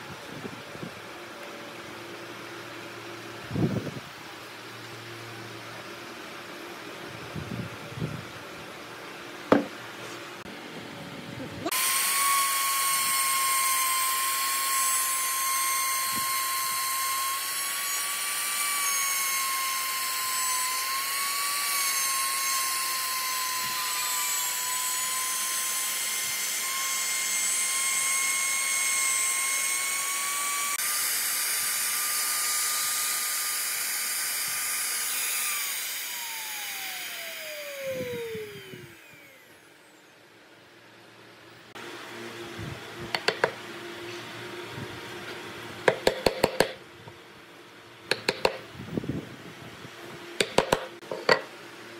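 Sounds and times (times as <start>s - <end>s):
router high-pitched whine: 11.5s - 40.2s.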